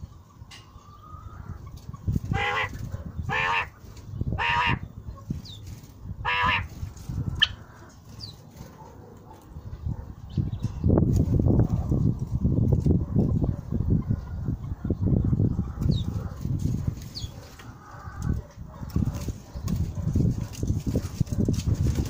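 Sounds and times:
quail calling: 0.8s - 4.9s, 6.2s - 7.9s.

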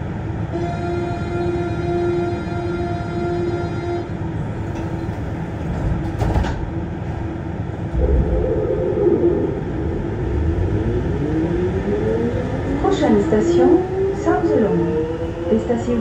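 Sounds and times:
metro car rumbling: 0.0s - 16.0s
steady tone: 7.8s - 12.8s
whining tones rising in pitch: 7.9s - 12.8s.

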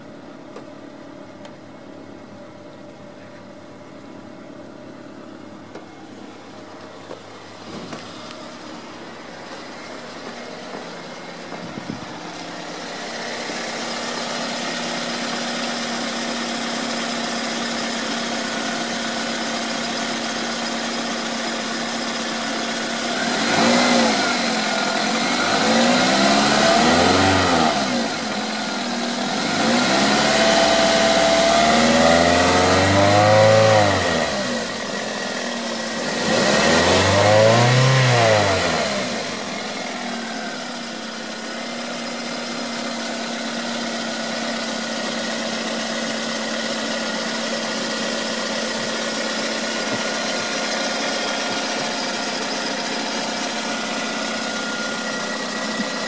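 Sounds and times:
car engine idling: 0.0s - 56.0s
engine revving: 22.8s - 41.9s.

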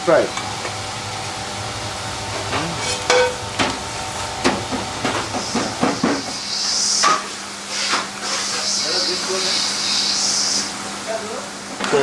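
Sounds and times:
oil bubbling and sizzling: 0.1s - 8.8s.

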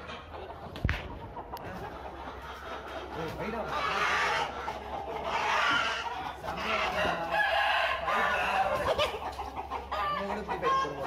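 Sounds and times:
chickens clucking and calling: 0.0s - 11.0s.

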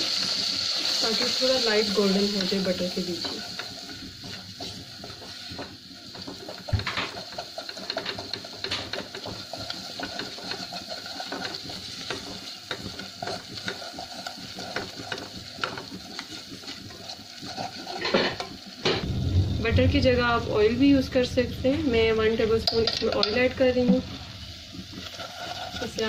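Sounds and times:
spatula scraping a pot: 2.2s - 18.7s, 22.7s - 26.0s.

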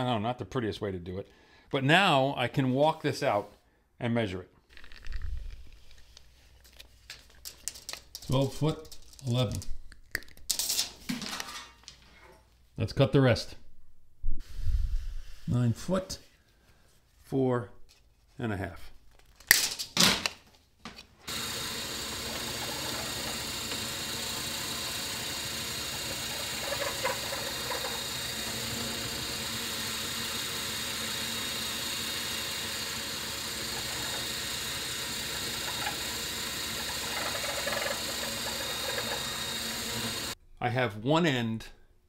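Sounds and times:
drill press motor running: 21.3s - 40.4s.

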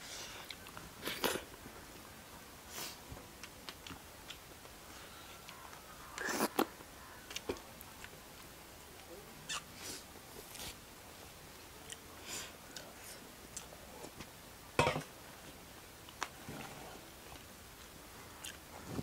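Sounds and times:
person chewing: 17.8s - 18.7s.

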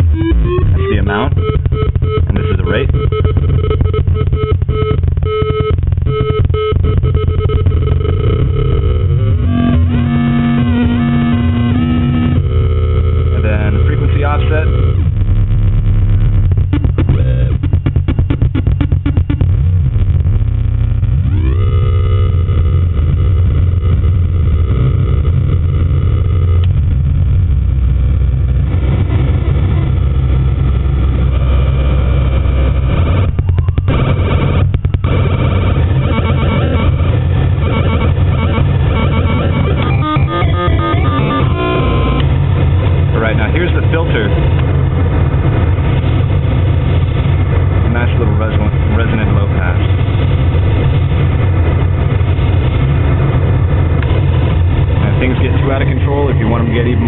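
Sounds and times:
gated synth tone bursts: 0.0s - 44.5s
crackling square-wave distortion buzz: 0.0s - 57.0s.

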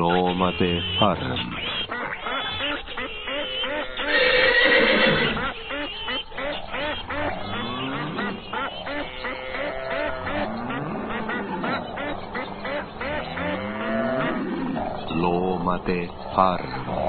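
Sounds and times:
farm animals calling: 0.0s - 17.0s.

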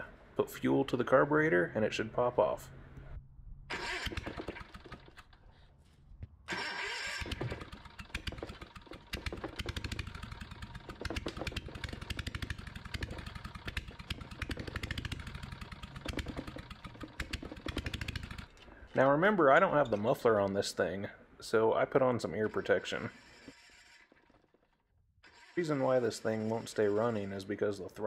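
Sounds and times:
engine running with loud popping: 3.7s - 5.3s, 7.2s - 18.6s
electric starter cranking: 3.7s - 5.4s, 6.5s - 18.9s, 22.4s - 27.5s.

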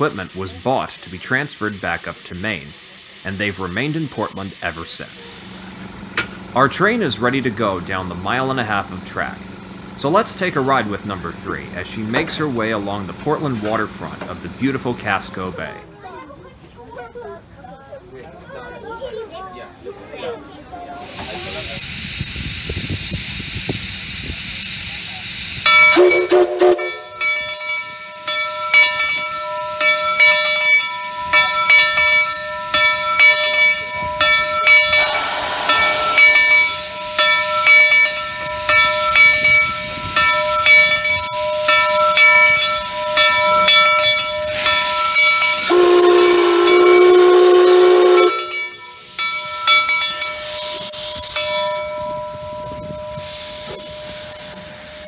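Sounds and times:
steam hissing from cylinder cocks: 0.0s - 15.6s, 20.9s - 55.0s
locomotive bell ringing: 25.3s - 55.0s
steam whistle: 25.6s - 27.3s, 32.2s - 39.2s, 40.1s - 49.8s.

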